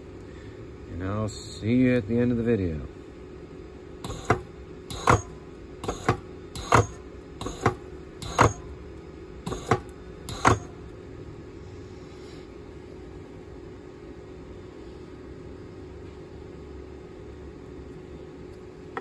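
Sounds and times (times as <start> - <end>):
steady low hum: 0.0 - 19.0
spot welder snapping: 4.0 - 8.8, 9.4 - 10.9.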